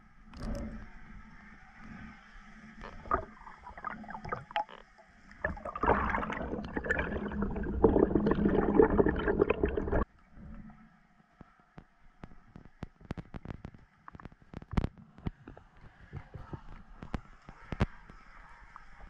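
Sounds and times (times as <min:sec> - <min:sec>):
water sloshing and gurgling: 0:02.7 - 0:10.0
splashing and bubbling: 0:02.8 - 0:10.0.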